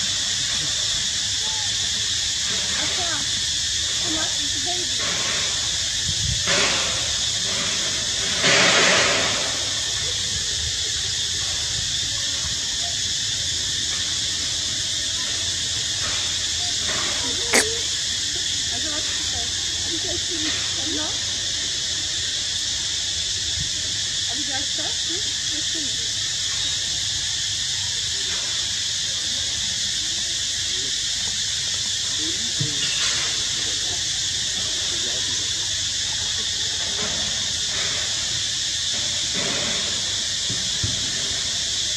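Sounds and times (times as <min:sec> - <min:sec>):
high-pitched hiss: 0:00.0 - 0:41.9
insect chorus drone: 0:00.0 - 0:41.9.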